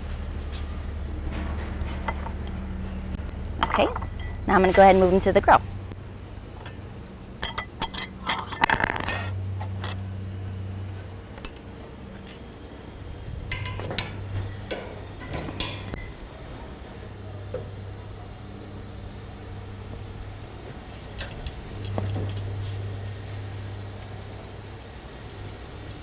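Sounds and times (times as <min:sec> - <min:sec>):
steady low hum: 0:00.0 - 0:26.0
metal tongs clinking: 0:00.7 - 0:10.6, 0:12.7 - 0:16.5.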